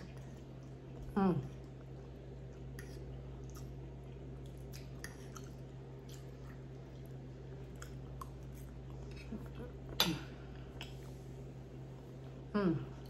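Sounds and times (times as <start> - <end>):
person chewing food: 0.0 - 11.3.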